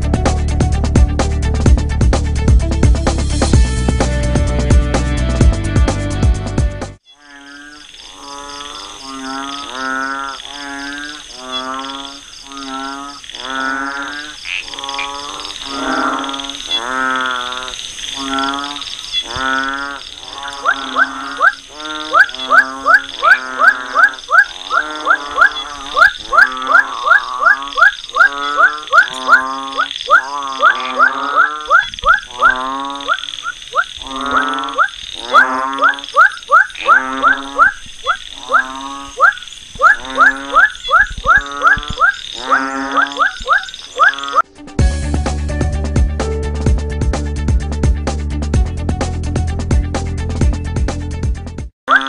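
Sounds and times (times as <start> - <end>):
frogs croaking: 7.0 - 44.5.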